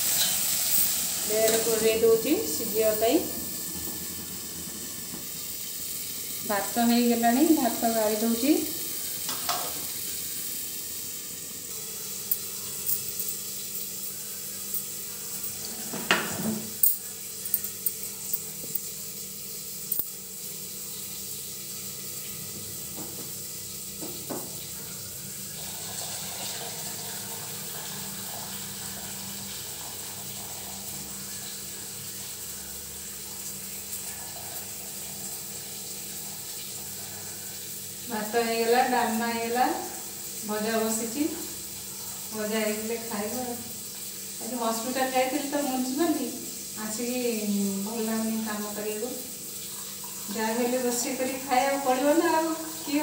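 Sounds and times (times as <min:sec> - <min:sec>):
water pouring from a pot: 0:19.8 - 0:38.1.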